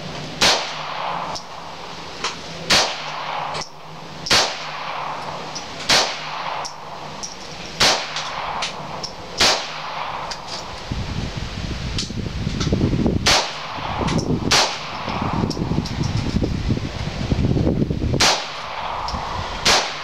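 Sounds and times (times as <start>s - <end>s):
pistol shots: 0.4s - 10.7s, 13.2s - 15.6s, 18.2s - 20.0s.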